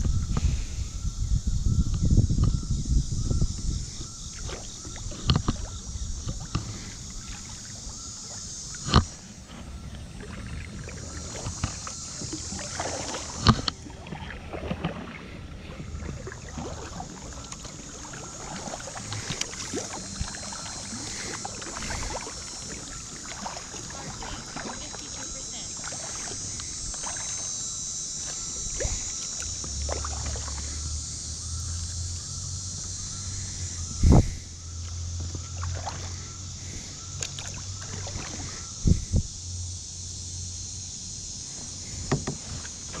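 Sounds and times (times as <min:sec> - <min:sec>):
water trickling: 0:03.2 - 0:40.4
paddle blades splashing: 0:03.6 - 0:40.2, 0:40.9 - 0:43.0.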